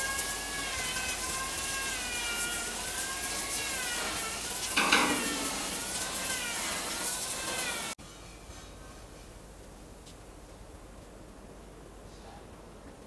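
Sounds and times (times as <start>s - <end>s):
broom scrubbing wet wood: 0.0s - 8.0s.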